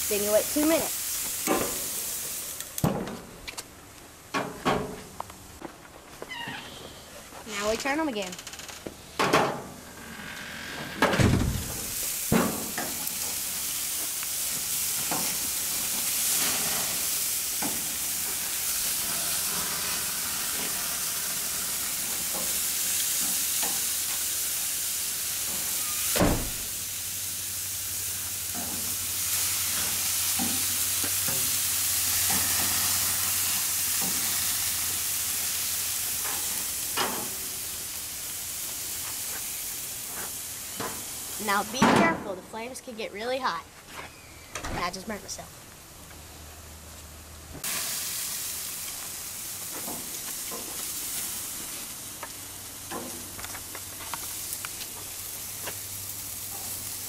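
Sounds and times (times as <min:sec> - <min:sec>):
steaks sizzling on a grill: 0:00.0 - 0:02.8, 0:11.5 - 0:41.8, 0:47.6 - 0:57.0.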